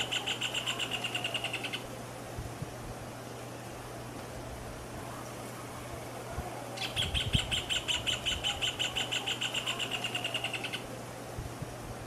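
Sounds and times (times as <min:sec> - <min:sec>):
bird song of ringing notes: 0:00.0 - 0:01.8, 0:06.8 - 0:10.8.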